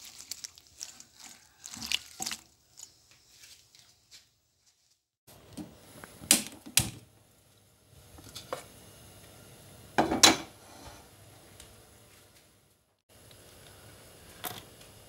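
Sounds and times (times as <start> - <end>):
gas burner hiss: 5.3 - 12.0, 13.1 - 15.0
wok clattering on metal grate: 10.0 - 10.6.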